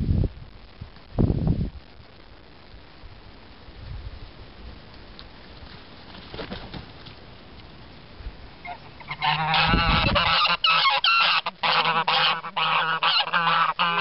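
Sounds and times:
geese honking: 8.6 - 14.0.

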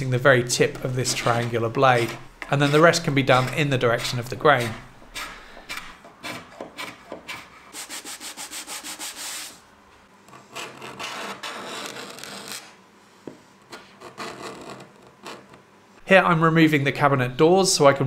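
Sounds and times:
hand scraper scraping wood: 0.0 - 9.6.

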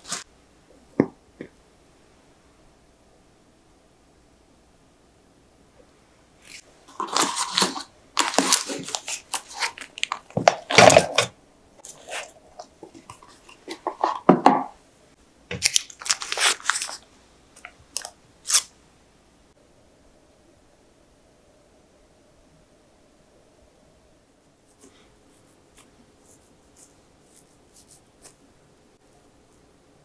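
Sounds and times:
cling film crinkling and tearing: 6.4 - 14.2, 15.5 - 18.7.

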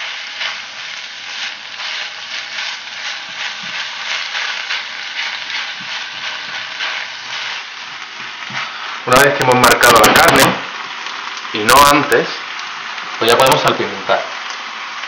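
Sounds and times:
spatula scraping a pan: 0.0 - 9.0
meat sizzling in a pan: 0.0 - 15.0.

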